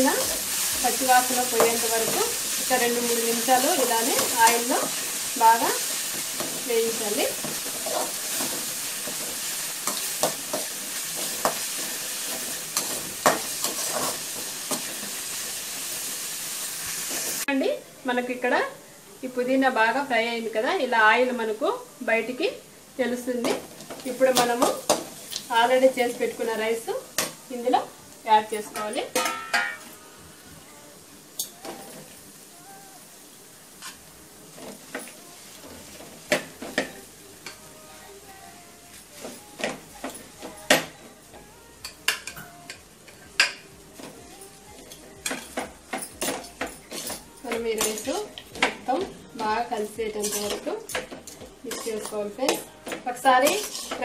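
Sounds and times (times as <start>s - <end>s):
metal spoon scraping a pan: 0.0s - 15.6s, 44.8s - 48.8s, 49.4s - 54.0s
food sizzling in oil: 0.0s - 54.0s
spatula scraping metal pan: 53.4s - 54.0s.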